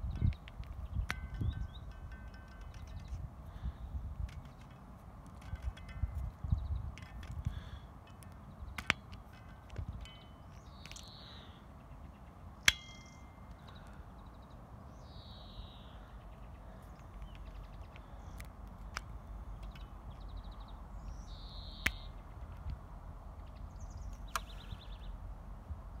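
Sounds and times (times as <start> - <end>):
brief metallic ring: 12.7 - 13.5.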